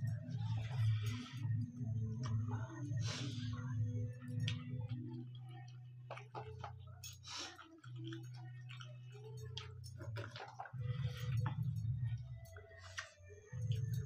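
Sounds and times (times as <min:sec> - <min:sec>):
wet mouth smacks and chewing: 0:06.1 - 0:06.8, 0:07.5 - 0:11.6.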